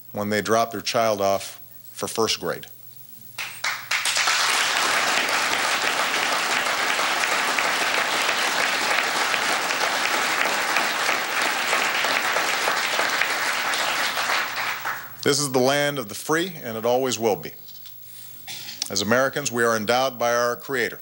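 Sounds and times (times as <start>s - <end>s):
audience applauding: 3.4s - 15.2s.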